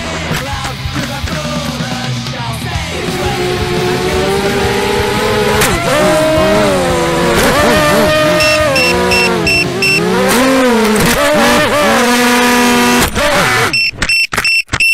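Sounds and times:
quadcopter motors whining: 3.0 - 13.9
quick beeping: 7.4 - 10.3, 13.5 - 14.9
short high buzzer beeps: 7.6 - 10.2, 13.4 - 14.9.

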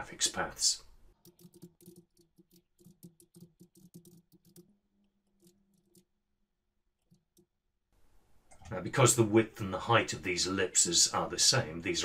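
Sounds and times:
computer keyboard typing: 1.1 - 4.7.

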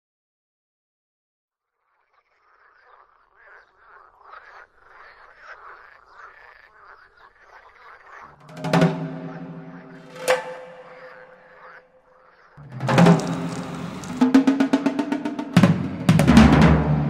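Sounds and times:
frogs croaking: 1.6 - 16.6
sharp loud hit: 12.7 - 17.0.

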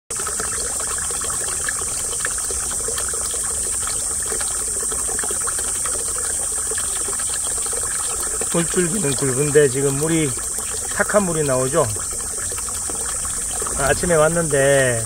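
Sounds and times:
insects droning: 0.1 - 15.0
water pouring into a pond: 0.1 - 15.0.

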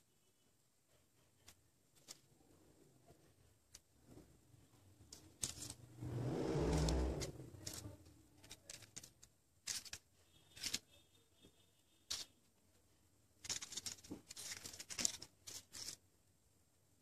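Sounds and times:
paper crinkling: 1.4 - 2.4, 5.0 - 5.9, 6.8 - 12.4, 13.4 - 16.0.

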